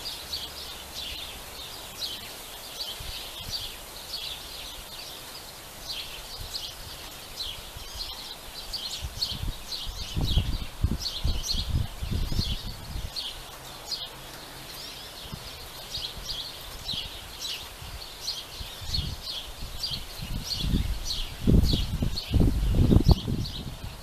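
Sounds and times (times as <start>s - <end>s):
small birds chirping: 0.0s - 24.0s
wind buffeting microphone: 5.8s - 14.0s, 14.8s - 24.0s.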